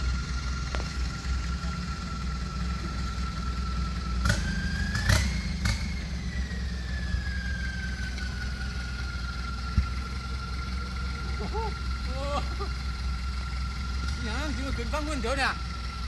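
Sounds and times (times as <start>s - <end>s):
rising and falling whine: 0.0s - 12.7s
vehicle engine running low: 0.0s - 16.0s.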